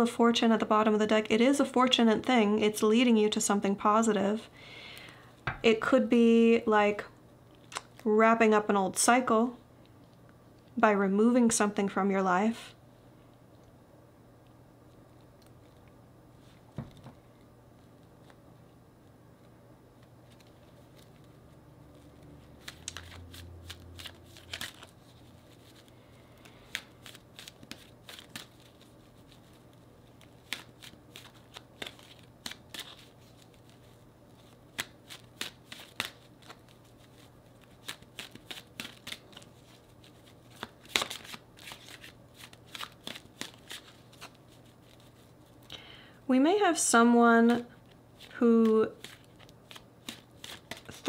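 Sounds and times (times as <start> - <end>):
cards being shuffled: 20.2 - 45.6, 47.5 - 51.0.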